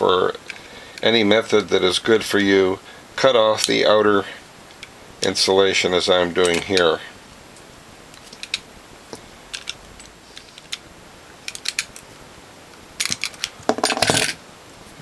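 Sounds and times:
handling noise: 13.0s - 14.4s.

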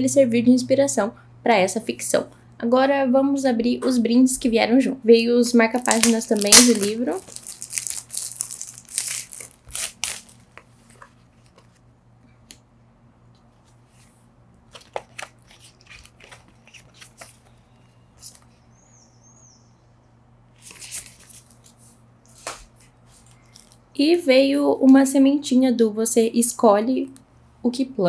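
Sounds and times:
steady low hum: 0.0s - 28.0s
packaging rustling and tapping: 5.8s - 11.8s, 14.7s - 17.6s.

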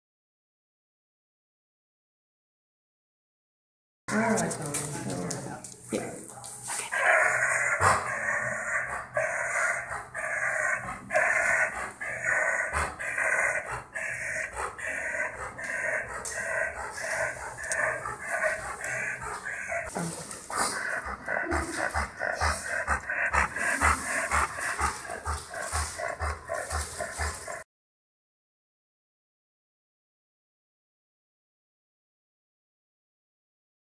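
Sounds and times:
dog raspy breathing and panting: 4.1s - 27.6s.

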